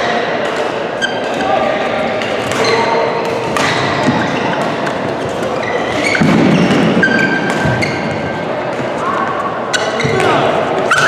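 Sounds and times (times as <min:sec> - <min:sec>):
shoes squeaking on court floor: 0:01.0 - 0:01.6, 0:02.2 - 0:11.0
rackets striking shuttlecock: 0:02.2 - 0:08.0.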